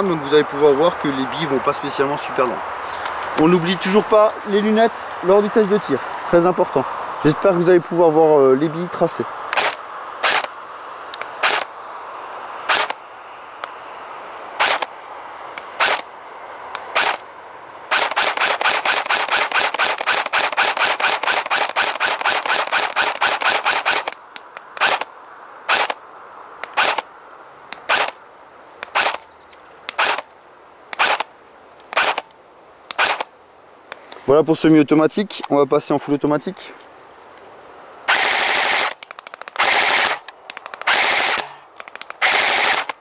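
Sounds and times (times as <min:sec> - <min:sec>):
airsoft rifle shots clacking: 0:09.5 - 0:10.6, 0:11.2 - 0:11.7, 0:12.7 - 0:13.0, 0:14.6 - 0:14.9, 0:15.7 - 0:16.0, 0:16.8 - 0:17.2, 0:17.9 - 0:25.1, 0:25.7 - 0:26.0, 0:26.6 - 0:27.1, 0:27.7 - 0:28.2, 0:28.8 - 0:29.2, 0:29.9 - 0:30.3, 0:30.9 - 0:32.3, 0:32.9 - 0:33.3, 0:38.1 - 0:43.0.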